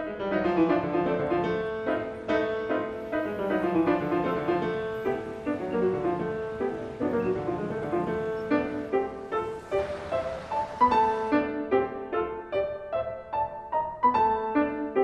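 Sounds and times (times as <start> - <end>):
piano single notes: 0.0 - 15.0.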